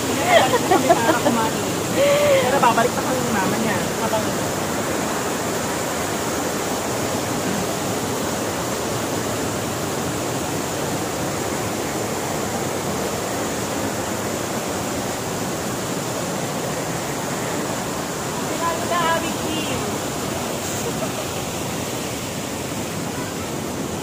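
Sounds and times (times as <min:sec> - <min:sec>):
water rushing over rocks: 0:00.0 - 0:24.0.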